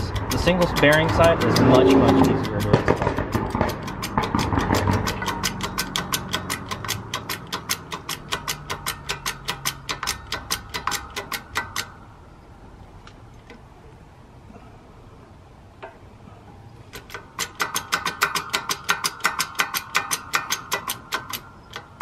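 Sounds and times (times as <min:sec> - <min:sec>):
hydraulic press pump clicking: 0:00.0 - 0:12.0, 0:16.9 - 0:22.0.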